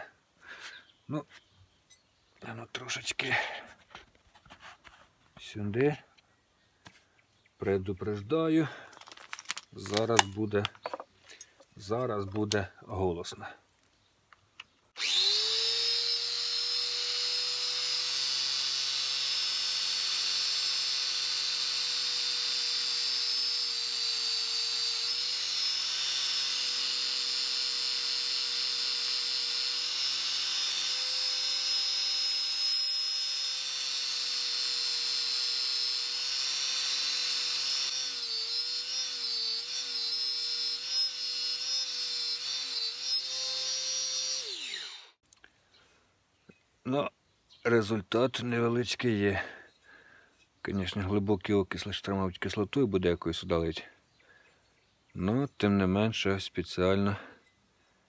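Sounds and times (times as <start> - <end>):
angle grinder whining: 15.0 - 45.2.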